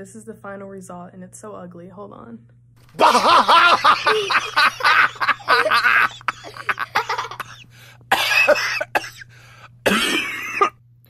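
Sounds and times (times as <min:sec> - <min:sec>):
woman coughing: 0:05.8 - 0:10.8.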